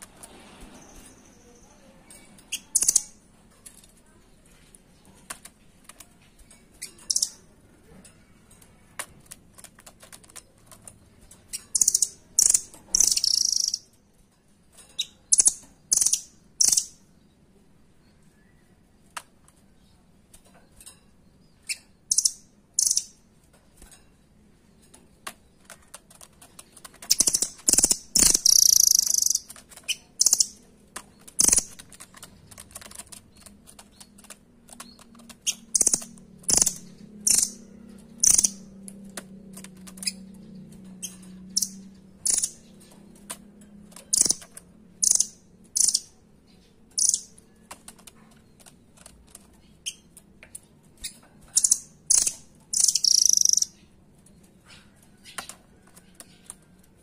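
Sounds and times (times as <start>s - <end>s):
short high-pitched chipping calls: 11.8s - 13.9s, 27.1s - 30.5s, 51.6s - 53.8s.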